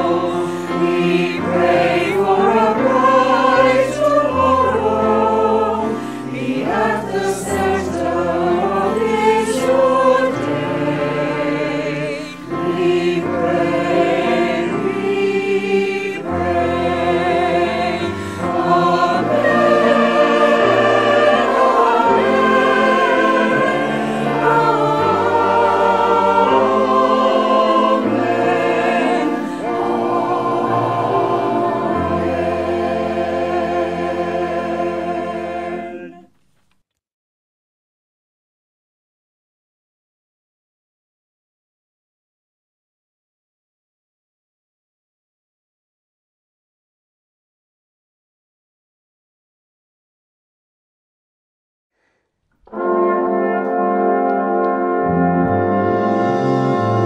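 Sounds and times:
mixed choir singing: 0:00.0 - 0:36.3.

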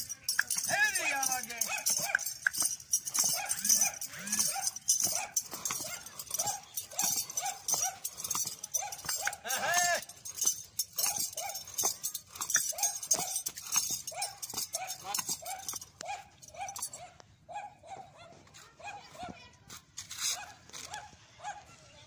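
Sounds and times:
dog barking: 0:01.3 - 0:09.4, 0:11.0 - 0:19.4, 0:20.3 - 0:21.9.

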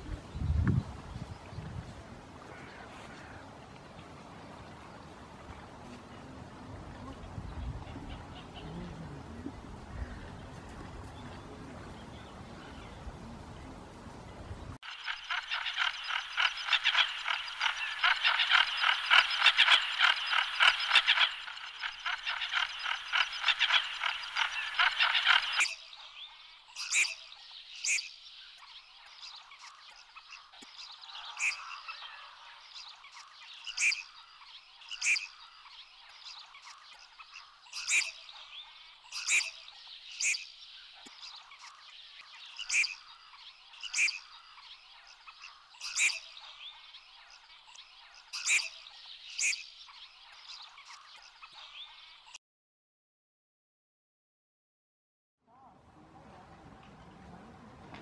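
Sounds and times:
chorus of pulsed animal calls: 0:14.9 - 0:28.1, 0:29.4 - 0:46.9.

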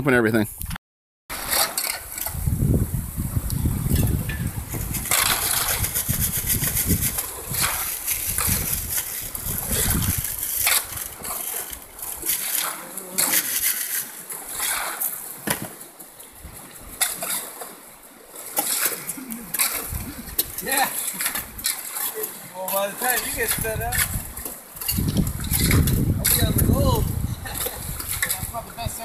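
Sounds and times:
water splashes: 0:01.3 - 0:29.0
shovel digging gravel: 0:04.8 - 0:15.0.

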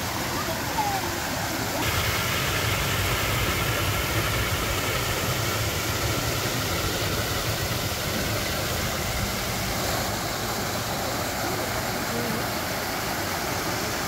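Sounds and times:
waterfall rushing into pond: 0:00.0 - 0:14.0.

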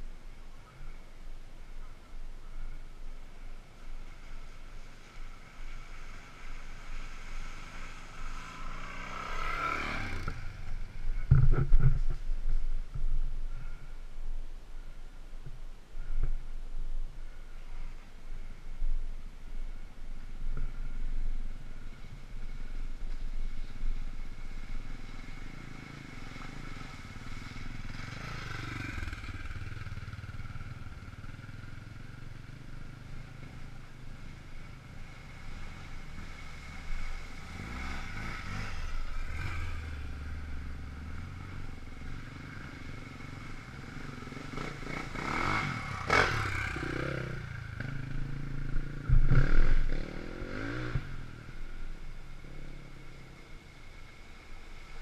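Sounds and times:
dirt bike engines revving: 0:03.4 - 0:12.4, 0:21.6 - 0:55.0.

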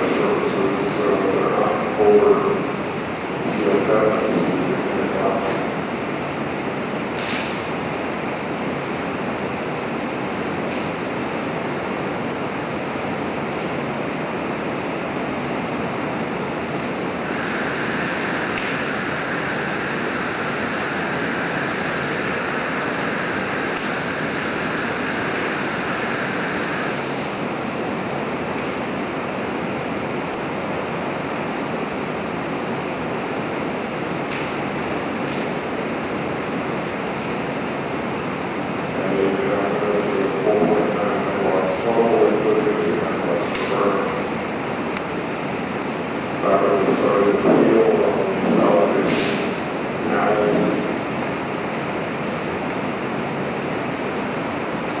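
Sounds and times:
fire and burner rushing: 0:00.0 - 0:55.0
high hiss: 0:17.0 - 0:27.6.

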